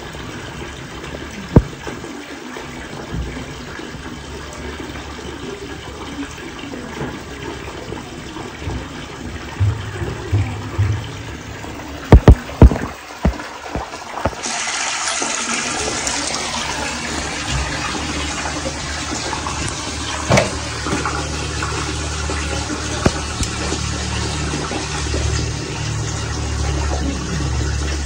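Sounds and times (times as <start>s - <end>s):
water gushing and splashing: 0.0s - 28.0s
low motor hum: 8.5s - 12.9s, 16.6s - 28.0s
sharp knocks: 8.7s - 14.4s, 20.2s - 21.1s.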